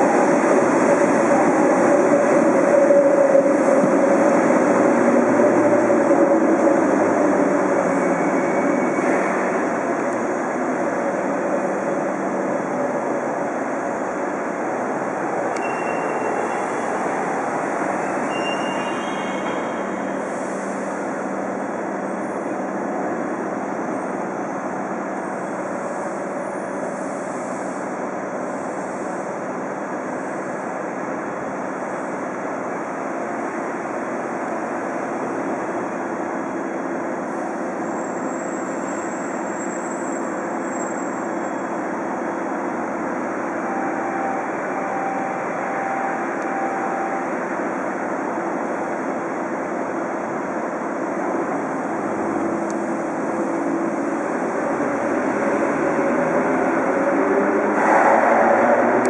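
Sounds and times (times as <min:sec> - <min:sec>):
faint short beeping: 0:15.6 - 0:16.8, 0:18.0 - 0:20.1, 0:43.6 - 0:47.3
train equipment humming: 0:40.3 - 0:57.3.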